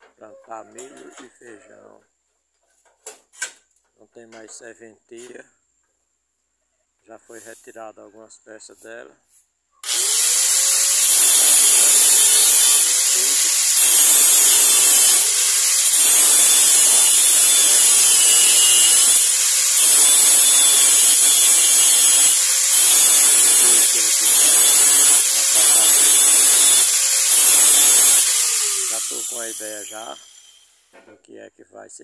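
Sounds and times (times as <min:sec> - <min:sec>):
angle grinder cutting steel: 0:09.8 - 0:30.9.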